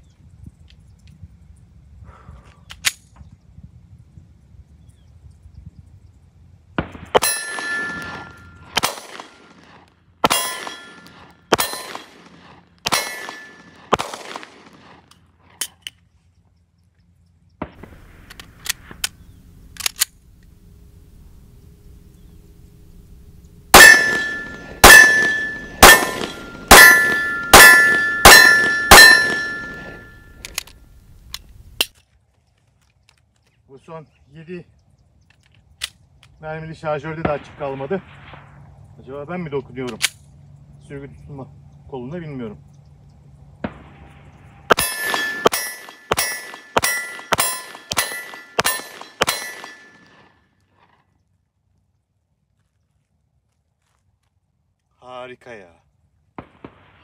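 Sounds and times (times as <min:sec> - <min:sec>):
pistol handling clicks: 0:02.6 - 0:03.2, 0:17.7 - 0:20.5, 0:23.8 - 0:33.5, 0:39.9 - 0:40.3
pistol shots: 0:06.8 - 0:15.1, 0:23.7 - 0:30.4, 0:44.7 - 0:50.3, 0:56.4 - 0:57.0
steel target ringing: 0:07.2 - 0:08.8, 0:10.3 - 0:12.1, 0:12.9 - 0:13.8, 0:23.7 - 0:30.4, 0:44.7 - 0:50.2.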